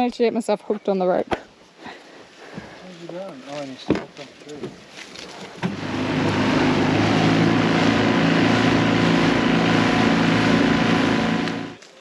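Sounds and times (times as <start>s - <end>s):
outboard motor running: 5.5s - 11.8s
water rushing: 5.6s - 11.8s.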